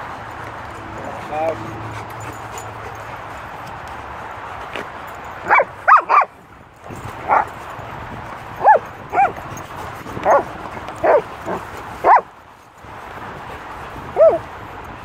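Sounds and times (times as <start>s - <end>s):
young dogs yelping barks: 5.4s - 6.3s, 7.2s - 7.6s, 8.6s - 12.3s, 14.0s - 14.5s.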